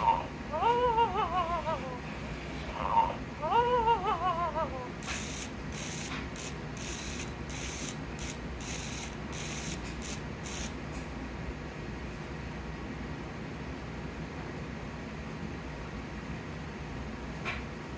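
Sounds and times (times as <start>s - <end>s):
warbling electronic toy voice: 0.0s - 6.0s
toy motor whirring: 0.0s - 10.8s
faint steady hum: 0.0s - 17.9s.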